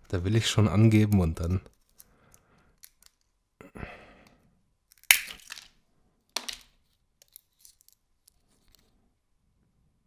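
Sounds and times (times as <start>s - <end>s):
walnut shells cracking: 1.7s - 3.4s, 4.8s - 8.8s.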